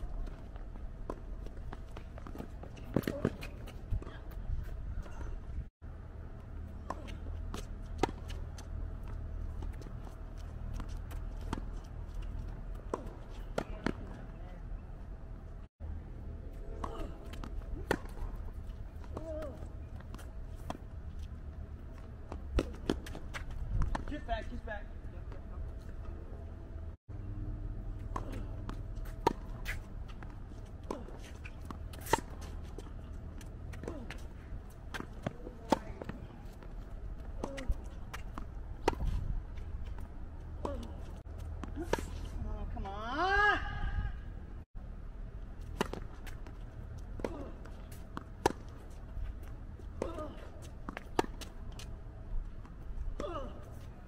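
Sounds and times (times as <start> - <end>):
tennis ball struck by rackets: 16.8 - 19.4, 47.2 - 48.9.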